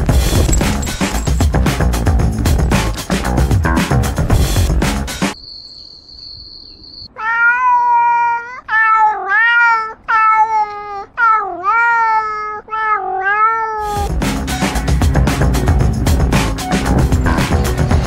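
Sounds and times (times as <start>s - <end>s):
cat meowing: 7.1s - 14.1s.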